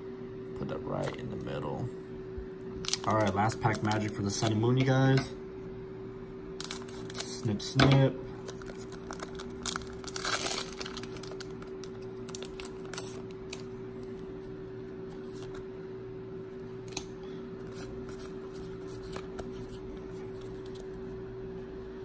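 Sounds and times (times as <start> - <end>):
steady low hum: 0.0 - 22.0
foil crinkling: 2.8 - 4.6, 6.6 - 7.5, 8.4 - 13.7
scissors cutting foil wrapper: 2.8 - 4.6, 6.6 - 7.3, 8.4 - 13.7.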